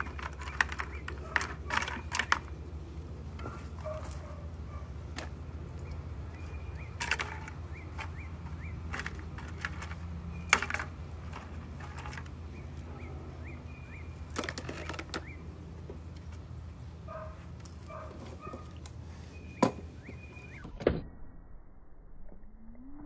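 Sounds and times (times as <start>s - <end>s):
birds chirping: 0.0s - 20.8s.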